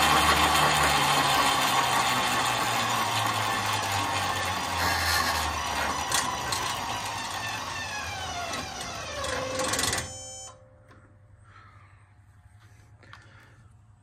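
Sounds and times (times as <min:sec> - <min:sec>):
electric motor whine: 0:00.0 - 0:10.5.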